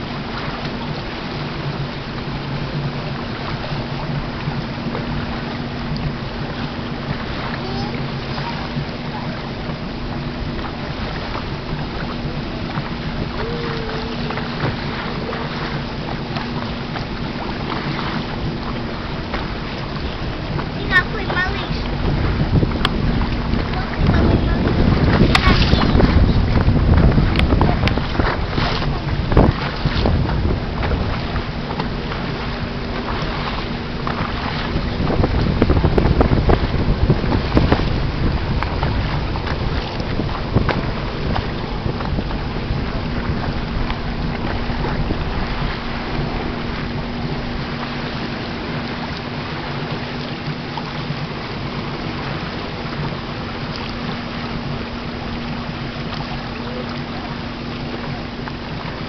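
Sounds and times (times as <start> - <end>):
boat motor humming: 0.0 - 59.0
water noise: 0.0 - 59.0
wind buffeting microphone: 0.0 - 59.0.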